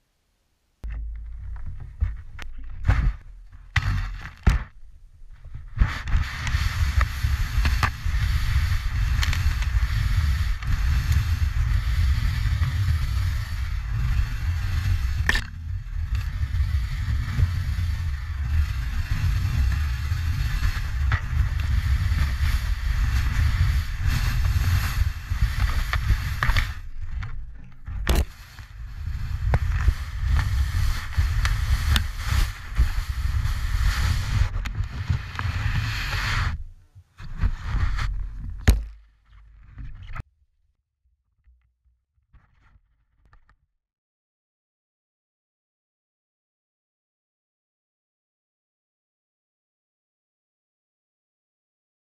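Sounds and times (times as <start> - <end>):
board hissing through snow: 5.6 - 27.2, 28.0 - 38.2.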